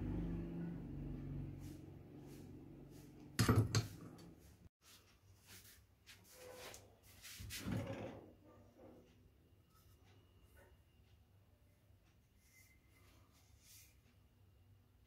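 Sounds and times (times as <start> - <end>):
sharp knocks on workbench: 3.4 - 4.0.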